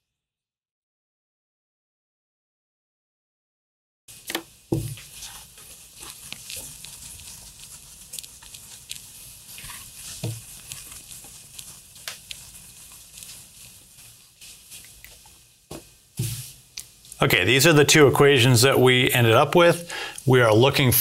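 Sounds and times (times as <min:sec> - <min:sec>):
cloth rubbing on glass: 0:04.8 - 0:15.0.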